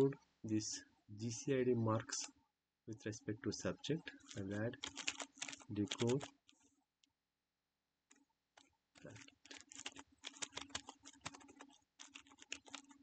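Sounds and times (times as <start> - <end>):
computer keyboard typing: 4.2 - 6.5, 8.6 - 13.0.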